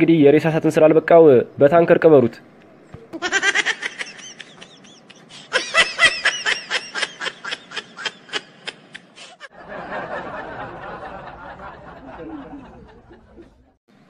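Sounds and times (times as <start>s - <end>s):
man laughing: 3.1s - 13.7s.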